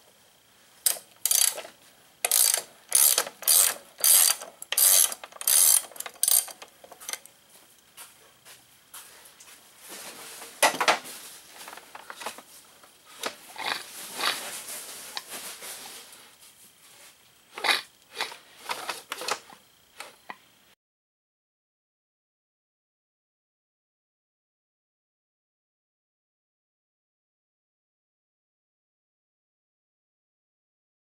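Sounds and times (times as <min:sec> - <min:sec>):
ratchet wrench clicking: 0:00.8 - 0:07.3.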